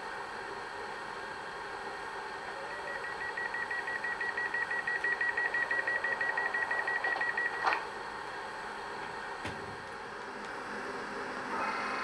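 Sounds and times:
rapid electronic beeps: 0:02.7 - 0:07.7.

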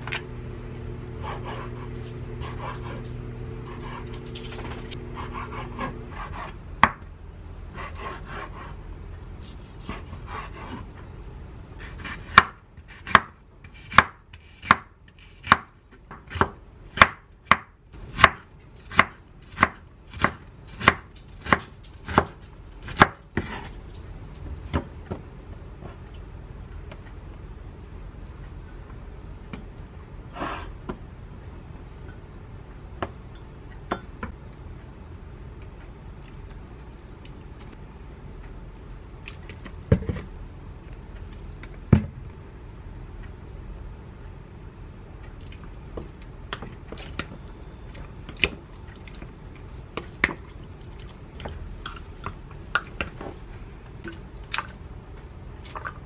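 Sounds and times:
low hum: 0:00.0 - 0:11.9
knife slicing onion on board: 0:01.2 - 0:03.1, 0:03.7 - 0:07.0, 0:07.8 - 0:08.8, 0:09.4 - 0:10.9, 0:11.8 - 0:23.8.

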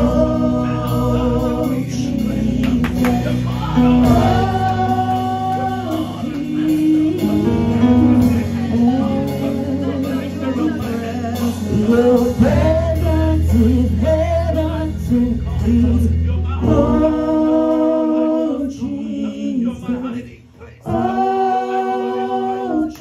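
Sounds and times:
keyboard playing sustained chords: 0:00.0 - 0:18.2
person singing: 0:00.0 - 0:19.7.

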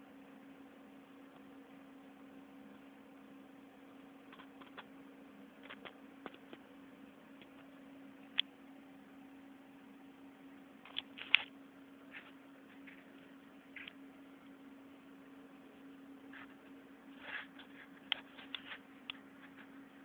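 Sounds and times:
steady low hum: 0:00.0 - 0:20.0
phone handling clicks and rubs: 0:05.6 - 0:06.6, 0:10.9 - 0:11.5, 0:17.2 - 0:19.8.

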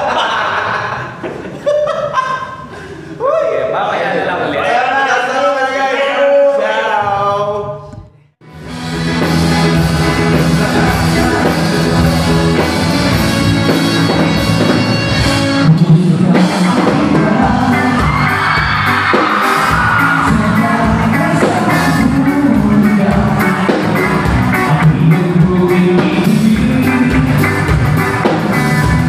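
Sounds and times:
pop-rock band with singing: 0:08.6 - 0:29.0.

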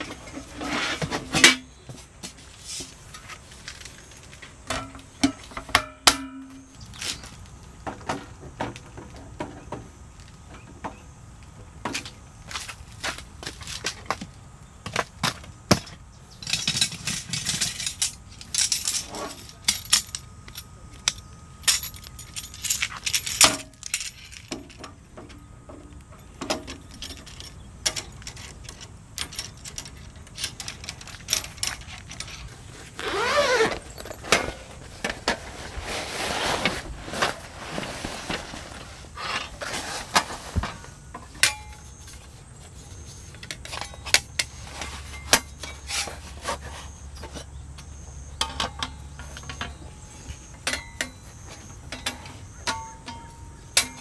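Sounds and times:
metal hooks clinking: 0:16.4 - 0:24.8
metal frame parts clicking: 0:16.4 - 0:25.4, 0:26.4 - 0:35.4, 0:47.2 - 0:54.0
fabric bag rustling: 0:32.9 - 0:40.6.

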